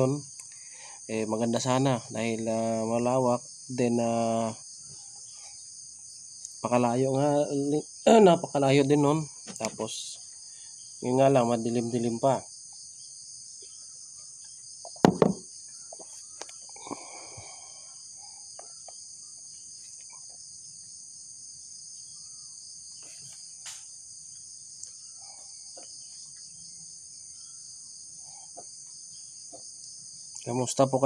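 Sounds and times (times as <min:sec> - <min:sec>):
insects chirring: 0:00.0 - 0:31.0
loud knock: 0:15.0 - 0:15.4.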